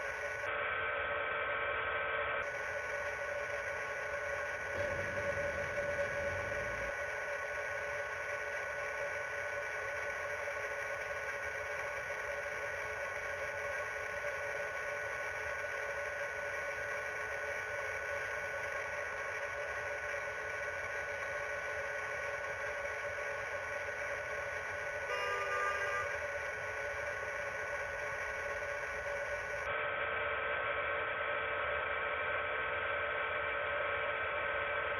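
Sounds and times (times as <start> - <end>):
steady hum of held tones: 0.0 - 34.9
low rumble: 4.6 - 7.8.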